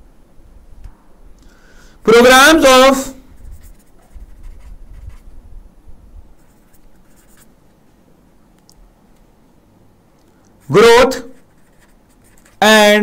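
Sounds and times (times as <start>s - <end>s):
pen writing on paper: 6.4s - 7.5s, 11.4s - 12.7s.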